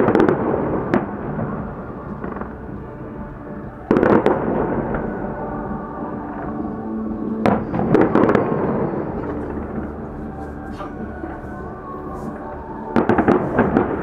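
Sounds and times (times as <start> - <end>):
fireworks bangs: 0.0 - 2.8, 3.8 - 5.2, 7.4 - 9.9, 13.0 - 14.0
reverberant rumble: 0.0 - 14.0.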